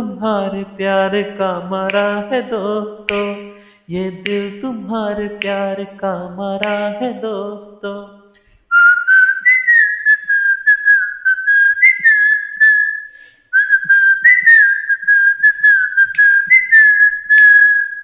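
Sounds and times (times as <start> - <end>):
man whistling a melody: 8.7 - 18.0.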